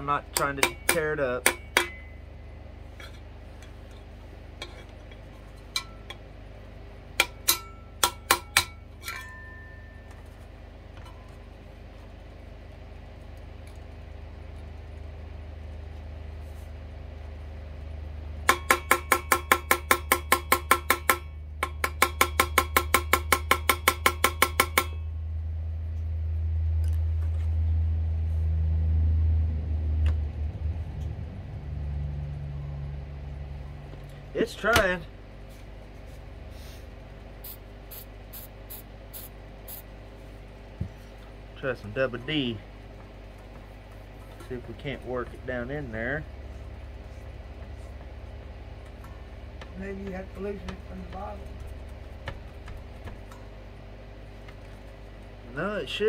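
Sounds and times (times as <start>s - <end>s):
steady low hum: 0.0s - 56.0s
metal tapping on turntable platter: 0.3s - 2.2s.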